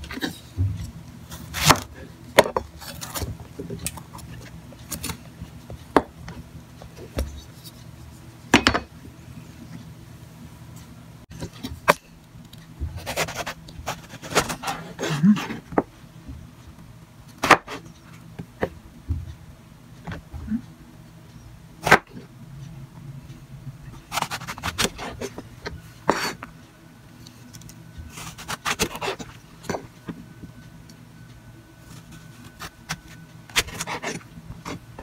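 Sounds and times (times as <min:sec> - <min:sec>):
knife rasping through eggplant: 0:13.0 - 0:15.6, 0:24.1 - 0:25.4, 0:28.1 - 0:29.3.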